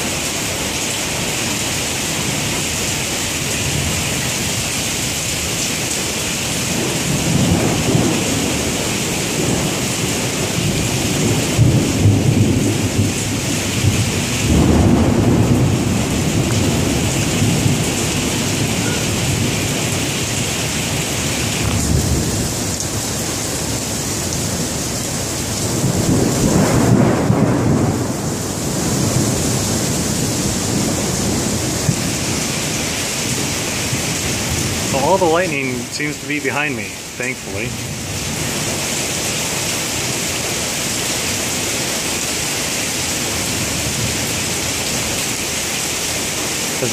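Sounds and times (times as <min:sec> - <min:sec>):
heavy rain pouring: 0:00.0 - 0:46.9
thunder rumbling: 0:10.4 - 0:19.6, 0:25.7 - 0:32.5.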